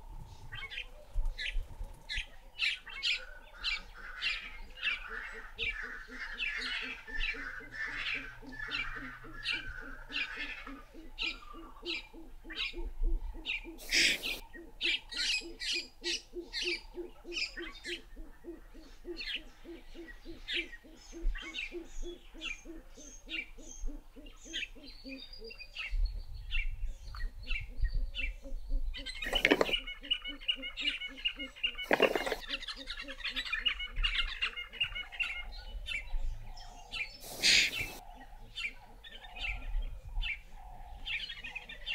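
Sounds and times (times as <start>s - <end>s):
birds calling and chirping: 0.0s - 41.9s
bird trill: 36.8s - 38.0s.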